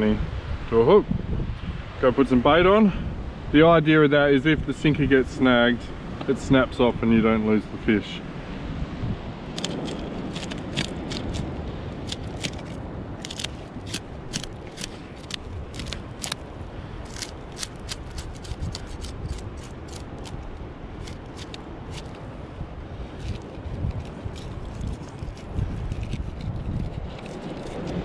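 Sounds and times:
steady low rumble: 0:04.5 - 0:28.0
knife cutting fish on rock: 0:09.6 - 0:22.2, 0:23.2 - 0:28.0.

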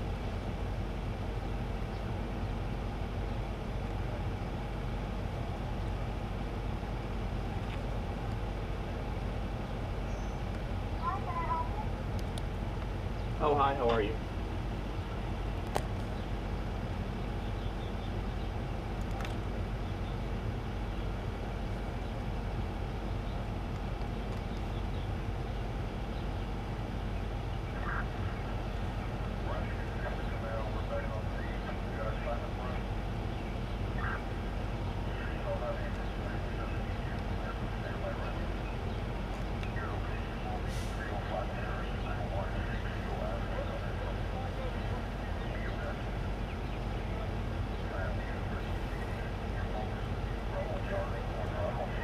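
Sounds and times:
low engine rumble: 0:00.0 - 0:52.0.

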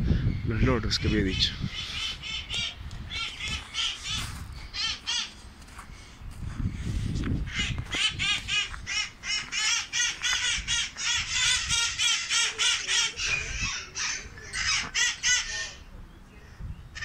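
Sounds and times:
parrots squawking: 0:00.9 - 0:05.4, 0:07.5 - 0:15.9.

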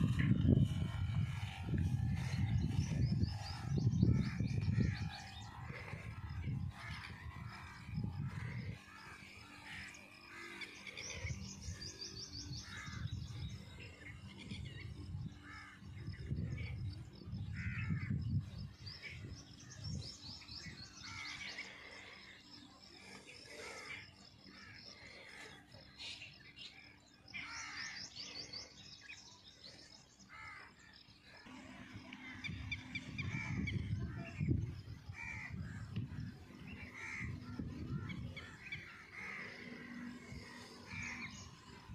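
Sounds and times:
wind gusts: 0:00.0 - 0:09.2, 0:12.4 - 0:21.4, 0:31.5 - 0:41.9
birds chirping and trilling: 0:00.0 - 0:41.9.

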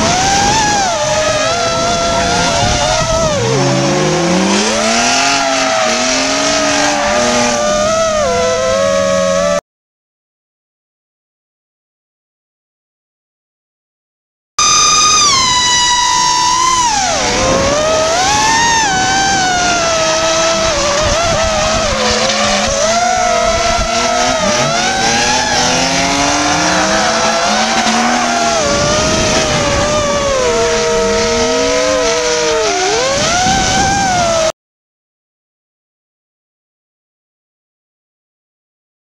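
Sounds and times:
car engines revving: 0:00.0 - 0:09.6, 0:14.6 - 0:34.5
drone motors whining: 0:00.0 - 0:09.6, 0:14.6 - 0:34.5
tyres screeching: 0:00.0 - 0:09.6, 0:14.6 - 0:34.2.

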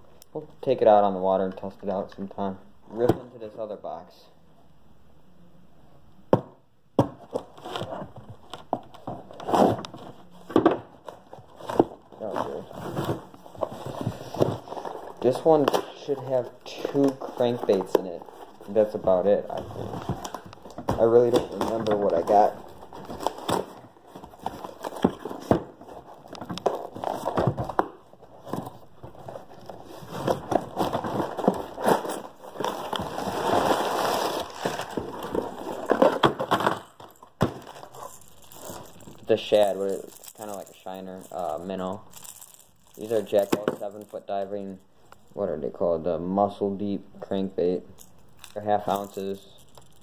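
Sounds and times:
packing tape tearing: 0:29.4 - 0:40.6.

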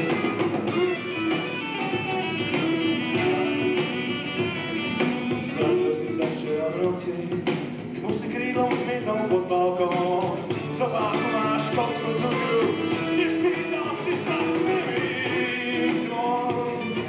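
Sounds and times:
saxophone melody: 0:00.0 - 0:06.3, 0:11.4 - 0:17.0
drums: 0:00.0 - 0:17.0
electric bass guitar: 0:00.0 - 0:17.0.

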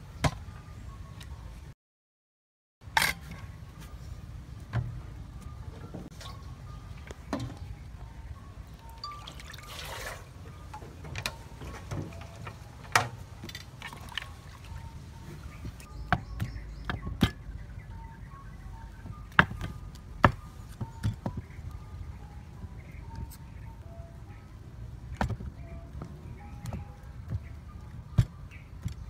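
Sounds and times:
water pouring into metal basin: 0:09.0 - 0:10.3.

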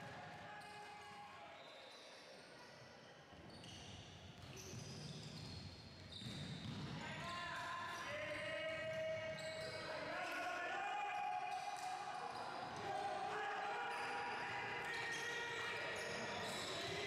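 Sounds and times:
players and coaches calling out: 0:00.0 - 0:01.9, 0:07.0 - 0:17.0
sneaker squeaks: 0:03.3 - 0:10.2, 0:14.8 - 0:17.0.

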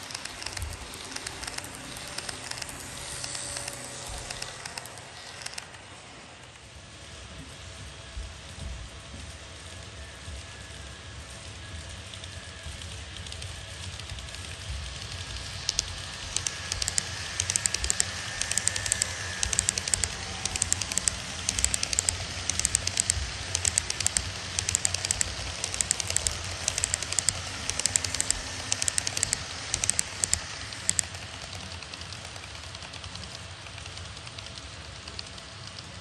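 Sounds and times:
model train wheels clicking: 0:00.0 - 0:36.0
low steady hum: 0:11.6 - 0:33.7.

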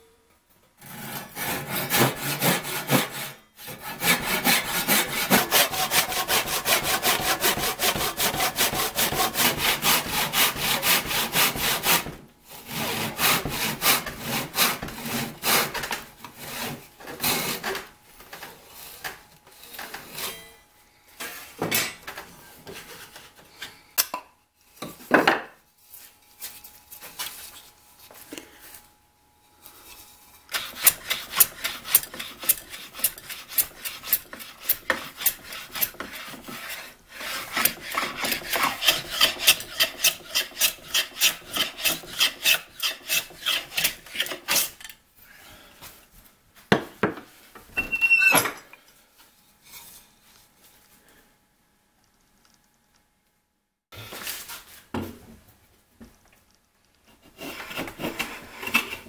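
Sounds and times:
pull saw cutting wood: 0:00.8 - 0:17.6, 0:30.5 - 0:44.7
hand plane shaving wood: 0:00.8 - 0:17.7, 0:30.5 - 0:44.8, 0:57.1 - 0:59.0.

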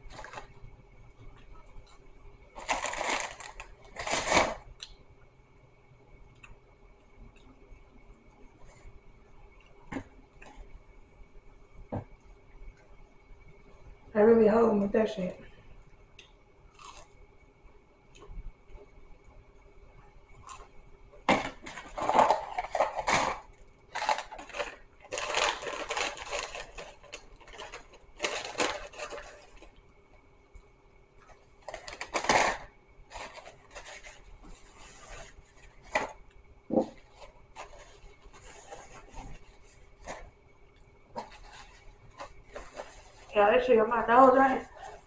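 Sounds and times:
food packaging rustling: 0:00.0 - 0:04.8, 0:21.3 - 0:29.8, 0:31.2 - 0:40.5, 0:41.1 - 0:45.0
person chewing crunchy food: 0:16.7 - 0:17.2.

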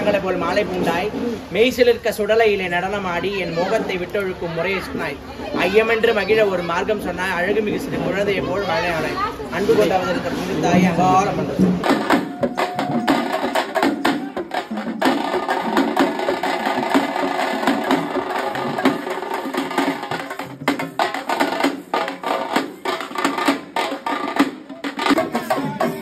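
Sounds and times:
fast driving drumming: 0:10.6 - 0:26.0.

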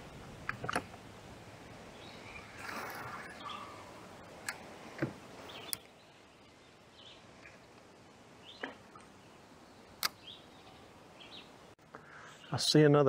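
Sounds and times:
sharp clicks and knocks: 0:00.4 - 0:01.0
faint bird chirps: 0:01.9 - 0:04.1.

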